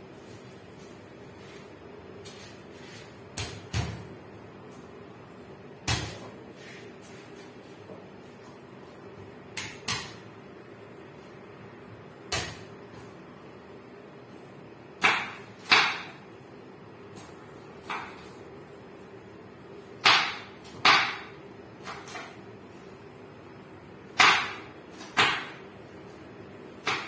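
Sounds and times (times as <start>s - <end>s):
faint steady hum: 0.0s - 27.0s
knife chopping on cutting board: 3.3s - 4.1s, 15.0s - 16.2s, 20.0s - 22.4s, 24.1s - 25.6s, 26.8s - 27.0s.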